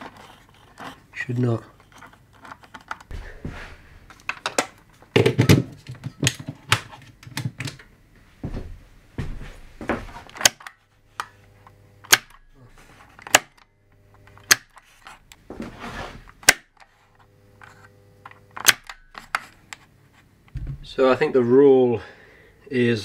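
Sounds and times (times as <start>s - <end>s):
faint steady hum: 0.0s - 23.0s
push-button switch clicks: 12.0s - 12.4s.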